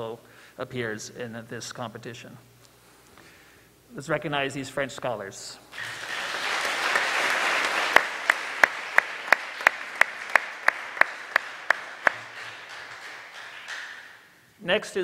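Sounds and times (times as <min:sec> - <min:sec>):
audience applauding: 0:05.7 - 0:14.4
single person clapping: 0:05.8 - 0:14.4.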